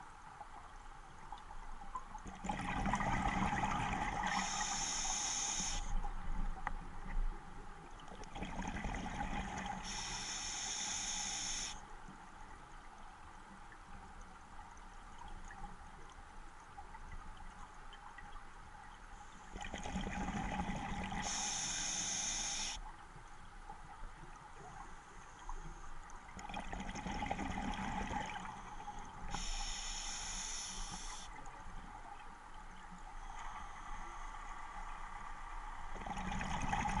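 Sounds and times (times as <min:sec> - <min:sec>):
hissing regulator inhalations: 0:04.3 - 0:05.9, 0:09.8 - 0:11.8, 0:21.2 - 0:22.8, 0:29.3 - 0:31.3.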